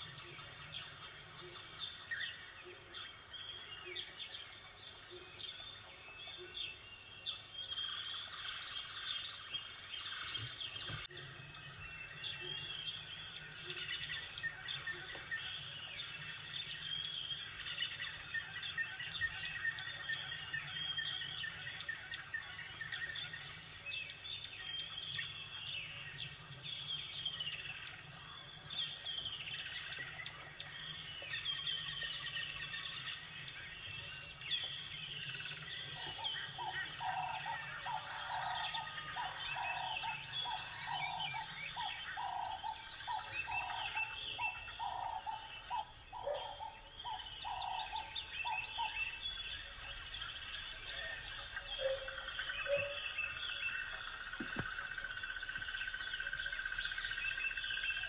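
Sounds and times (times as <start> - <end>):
small birds chirping: 0.0 - 58.0
lower repeated bird call: 34.2 - 50.0, 50.6 - 58.0.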